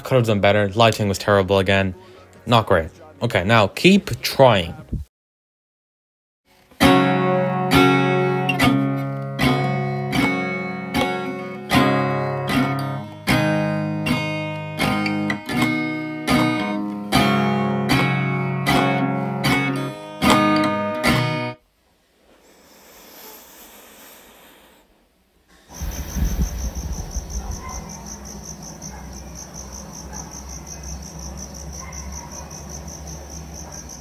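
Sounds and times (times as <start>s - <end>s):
acoustic guitar strumming chords: 6.7s - 21.6s.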